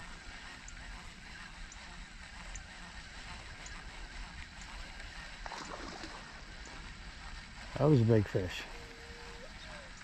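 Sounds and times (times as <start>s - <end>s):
small high ticks: 0.0s - 10.0s
waterfowl honking: 8.4s - 10.0s.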